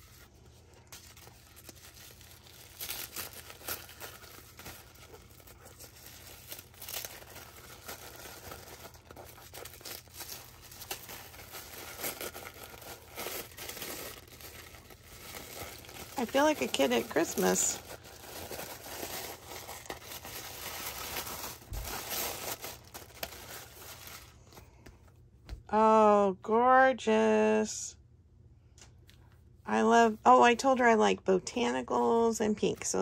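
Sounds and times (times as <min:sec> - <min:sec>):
paper crinkling and rustling: 0:00.0 - 0:25.1.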